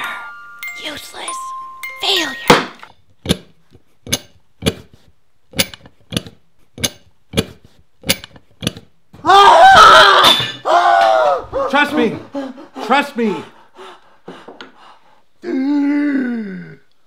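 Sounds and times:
hand tool clicking: 5.5 - 8.8
man screaming in pain: 9.2 - 12.2.

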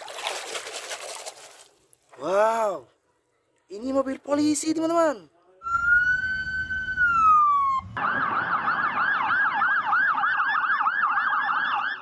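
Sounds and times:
police siren wailing and yelping: 5.6 - 12.0.

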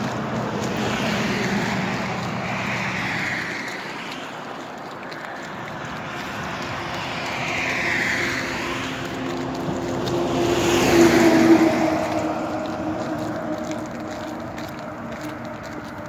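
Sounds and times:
tyre noise of passing traffic: 0.0 - 16.0
vehicle engine hum: 0.0 - 16.0.

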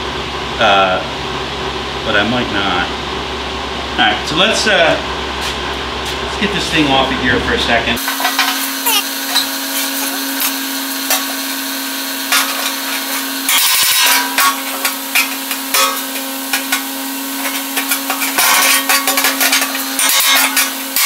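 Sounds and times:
electric fan humming: 1.1 - 21.0
metal grill hood clattering: 12.3 - 21.0.

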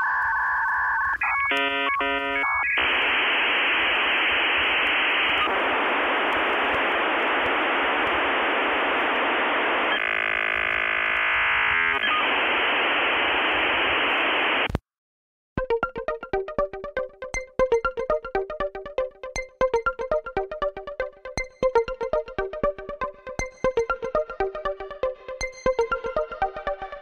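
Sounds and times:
modem harsh hiss: 0.0 - 14.8
dial-up modem chirpy tones: 0.9 - 14.7, 15.6 - 27.0
buzzy stacked tones: 15.6 - 27.0.

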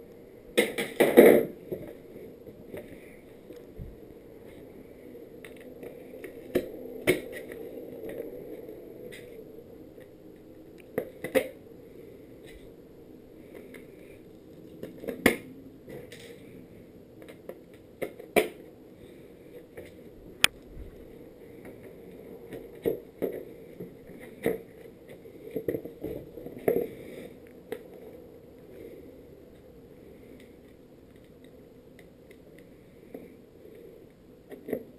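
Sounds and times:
skateboard parts knocking and clicking: 0.6 - 3.7, 5.4 - 8.3, 10.0 - 11.6, 14.7 - 16.4, 17.2 - 18.7, 34.5 - 34.9.

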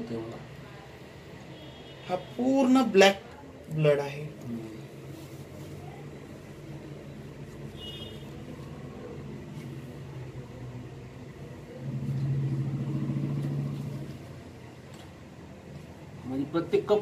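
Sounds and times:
low motor hum: 11.3 - 14.6.

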